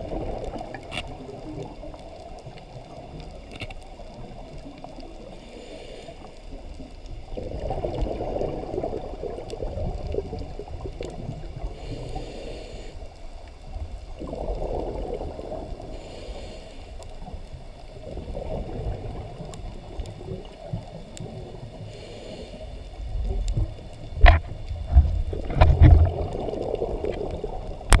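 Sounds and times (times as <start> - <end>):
hissy regulator inhalations: 5.4 - 6.5, 11.6 - 13.1, 15.9 - 17.3, 21.8 - 23.0
underwater bubbling exhalations: 7.3 - 12.2, 14.2 - 16.3, 23.2 - 28.0.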